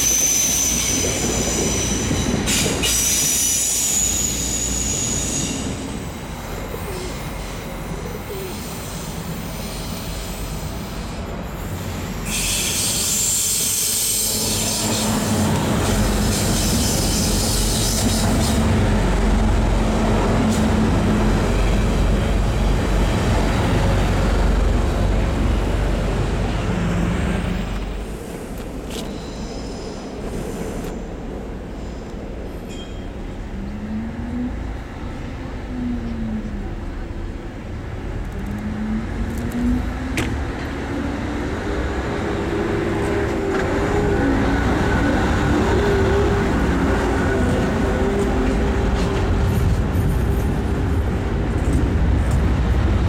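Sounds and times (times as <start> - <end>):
train wheels squealing on rails: 0.0 - 19.2, 26.4 - 35.2
low train rumble: 0.0 - 53.0.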